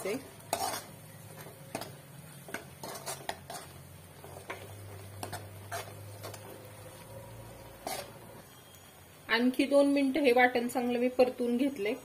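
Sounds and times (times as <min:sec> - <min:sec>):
spoon scraping metal pan: 0:00.0 - 0:08.5.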